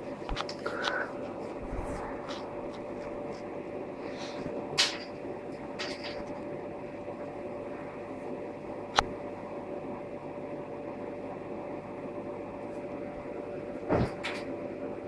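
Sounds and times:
steady hum and hiss: 0.0 - 15.0.

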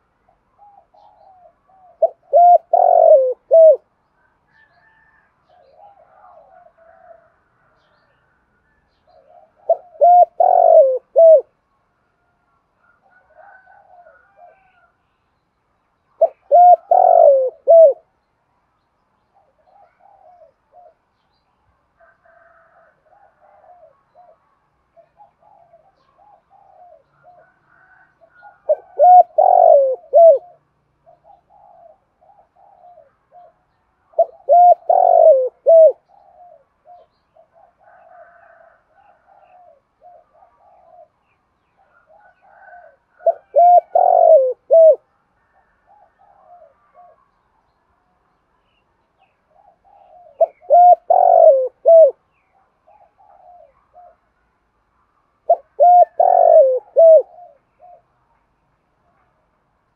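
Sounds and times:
dove cooing: 0.0 - 3.9, 4.6 - 7.8, 9.1 - 11.5, 12.8 - 14.9, 16.2 - 18.1, 19.4 - 21.1, 22.4 - 47.3, 49.4 - 54.3, 55.4 - 58.1
faint cooing of other doves: 0.0 - 15.2, 16.0 - 18.3, 19.2 - 54.4, 55.4 - 59.9.

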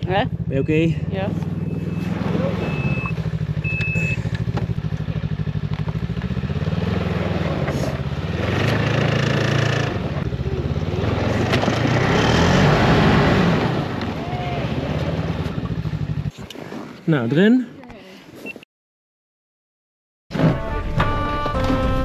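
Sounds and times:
snowmobile engine idling and revving: 0.0 - 16.5.

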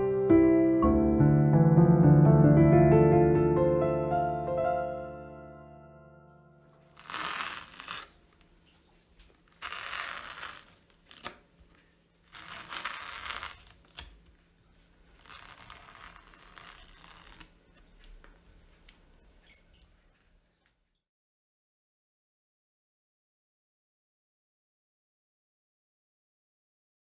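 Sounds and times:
masking tape peeling: 6.8 - 8.5, 9.3 - 11.5, 12.2 - 14.3, 15.0 - 17.8.

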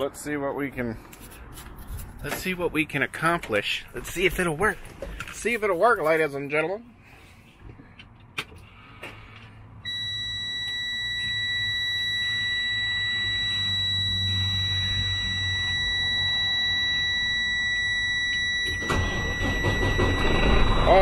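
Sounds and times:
high single-tone warning buzzer: 9.9 - 20.7
ignition click: 18.2 - 20.7.

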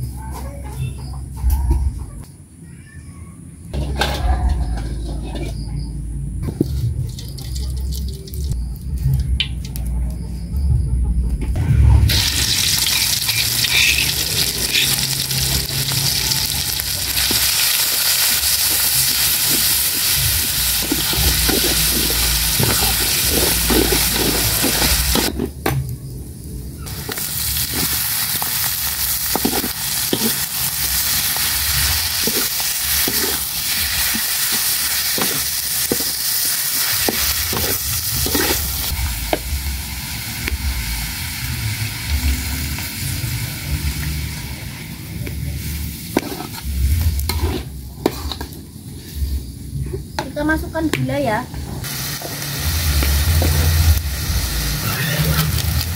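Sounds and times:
metal spatula scraping wok: 3.8 - 5.9, 12.1 - 25.5, 26.8 - 39.1, 45.6 - 49.4
oil sizzling in a wok: 12.0 - 25.3, 26.8 - 49.5, 50.6 - 55.9.

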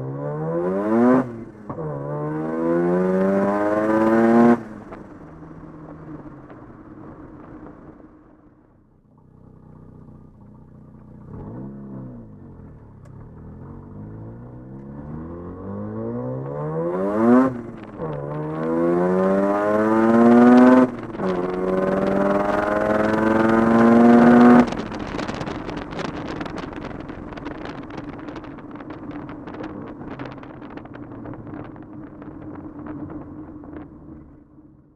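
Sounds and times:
rotary engine accelerating: 0.0 - 4.9, 9.2 - 31.9
engine crackling: 0.5 - 34.9.

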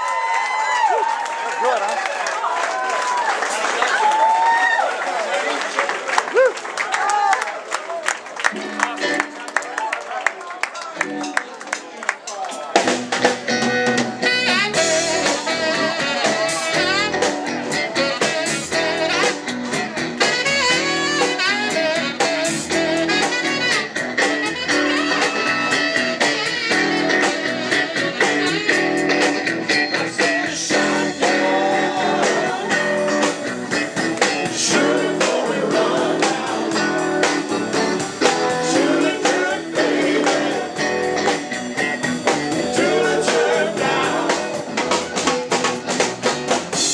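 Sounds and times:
bass guitar: 8.4 - 9.6, 12.7 - 46.9
electric guitar: 8.4 - 9.6, 12.8 - 46.9
drum kit: 11.0 - 46.9
person singing: 14.4 - 19.4, 29.7 - 41.4, 42.5 - 45.2.

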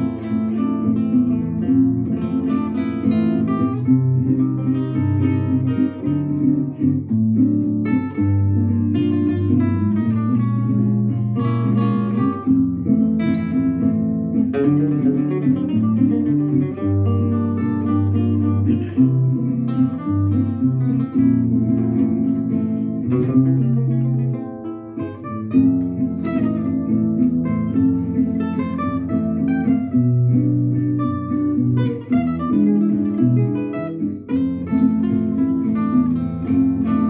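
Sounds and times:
acoustic guitar plucked and strummed: 0.0 - 37.0.

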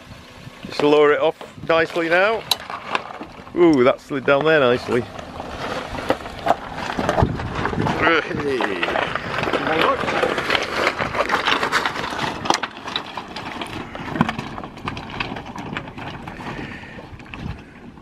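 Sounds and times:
tyres crunching over gravel: 0.1 - 18.0
stones clicking and knocking: 2.0 - 18.0.

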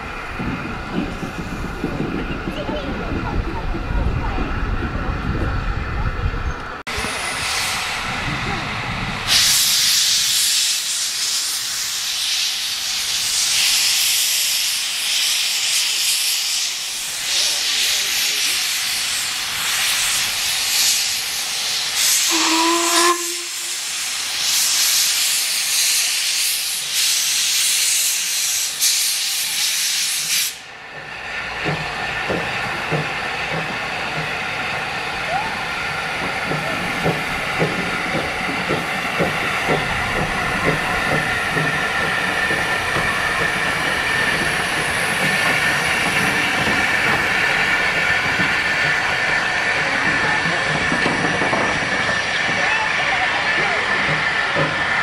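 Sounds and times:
loud hiss of steam: 6.9 - 55.0
steam whistle toot: 22.0 - 23.8.

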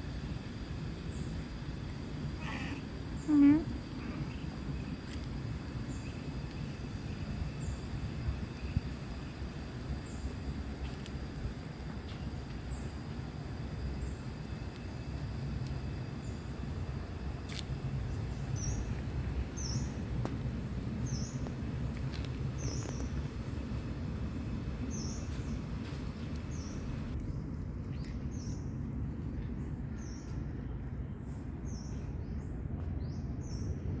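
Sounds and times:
low outdoor background rumble: 0.0 - 34.0
small bird chirping: 22.6 - 23.2.

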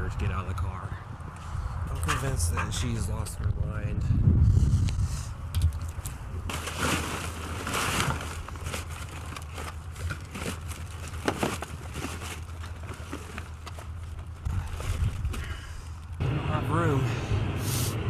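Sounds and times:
steady low rumble: 0.0 - 7.6
bags and packaging crinkling: 6.5 - 16.2.

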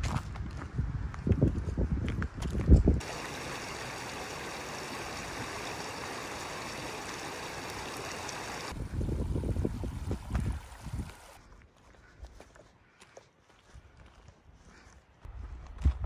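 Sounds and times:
stream rushing over stones: 3.0 - 11.4.

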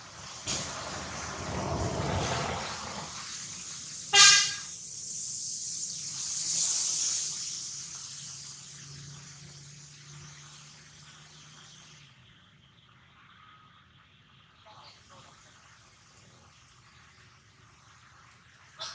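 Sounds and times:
steady outdoor hiss: 0.0 - 18.9
vehicle horn honk: 4.1 - 4.7.

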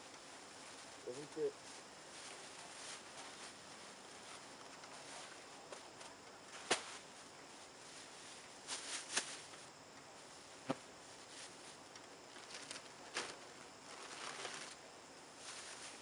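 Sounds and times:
crinkling plastic bag and paper: 12.3 - 14.8.

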